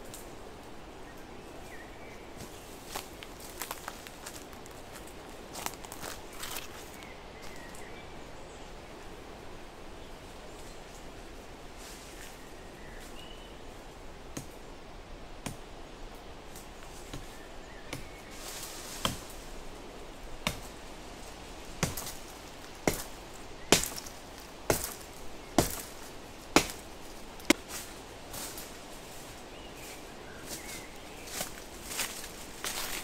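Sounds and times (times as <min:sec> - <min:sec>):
hatchet chopping wood: 0:20.4 - 0:20.7, 0:21.8 - 0:22.2, 0:22.8 - 0:23.1, 0:23.7 - 0:24.1, 0:24.7 - 0:25.0, 0:25.6 - 0:25.9, 0:26.5 - 0:26.8.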